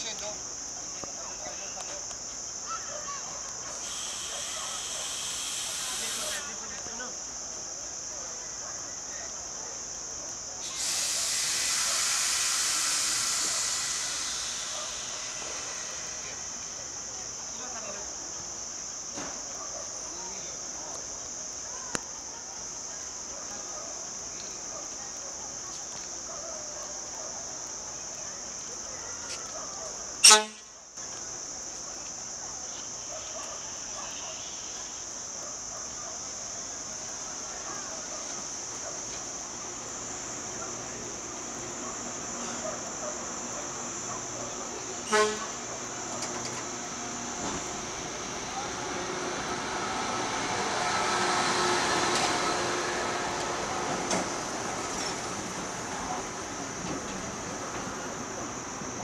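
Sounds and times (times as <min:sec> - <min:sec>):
train wheels rumbling on rail: 0:10.6 - 0:16.6, 0:45.1 - 0:59.0
train horn toot: 0:30.2 - 0:30.7, 0:45.1 - 0:45.6
traction motor whine: 0:46.0 - 0:55.7.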